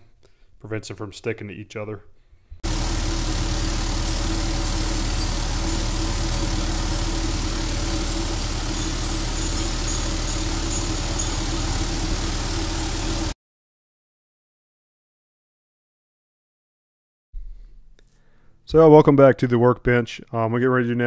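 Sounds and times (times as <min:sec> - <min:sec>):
motor hum: 0:02.6 - 0:13.4.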